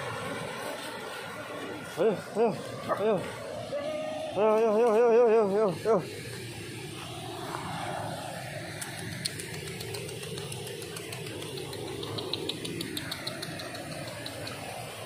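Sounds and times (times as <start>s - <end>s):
river rushing: 0.0s - 9.8s.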